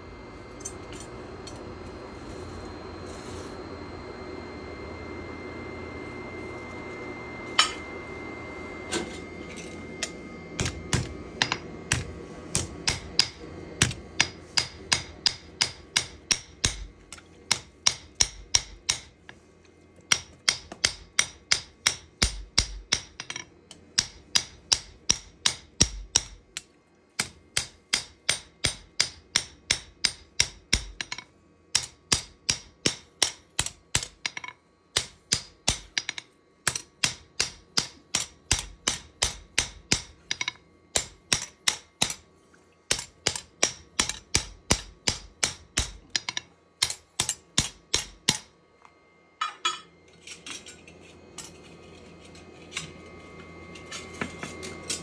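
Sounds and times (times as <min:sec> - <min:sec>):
steady hum: 0:00.0 - 0:55.0
hammer striking steel: 0:07.6 - 0:07.9, 0:08.9 - 0:19.3, 0:20.1 - 0:42.2, 0:42.9 - 0:48.6, 0:49.4 - 0:50.8.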